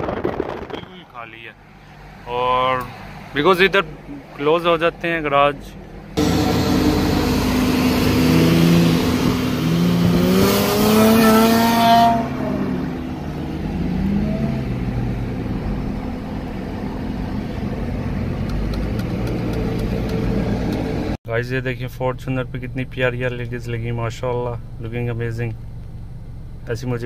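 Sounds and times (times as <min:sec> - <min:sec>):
rushing wind: 0:00.0 - 0:01.2
road noise: 0:00.0 - 0:27.0
car engine accelerating: 0:05.9 - 0:21.2.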